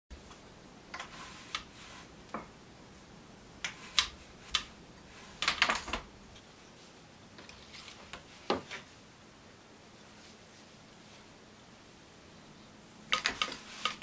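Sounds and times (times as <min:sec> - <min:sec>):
wooden loom knocking and clacking: 0:13.1 - 0:14.0.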